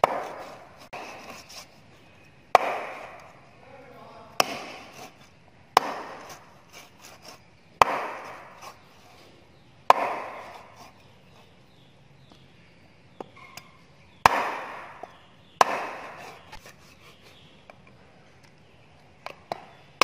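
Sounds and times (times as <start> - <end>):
cleaver chopping on wooden block: 0.0 - 1.4, 2.5 - 3.3, 4.4 - 5.2, 5.8 - 8.8, 9.9 - 10.9, 14.2 - 16.4.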